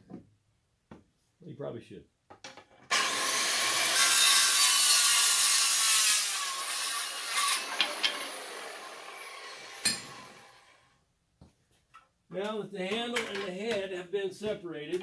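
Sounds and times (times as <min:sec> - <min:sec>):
power tool cutting wood: 0:02.9 - 0:10.8.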